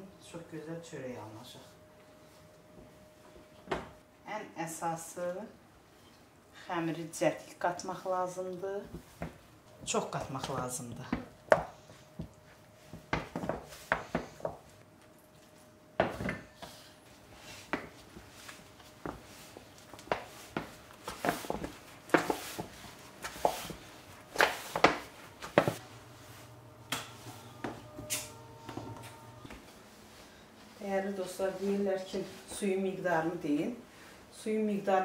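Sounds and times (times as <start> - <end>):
hands kneading sticky dough: 16.6 - 26.5
dough slaps and squishes: 20.0 - 25.8
faint low hum: 25.1 - 34.1.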